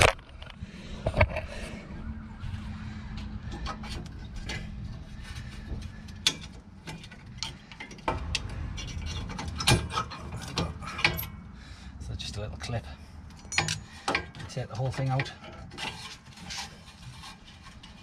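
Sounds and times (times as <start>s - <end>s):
low hum: 0.0s - 12.2s.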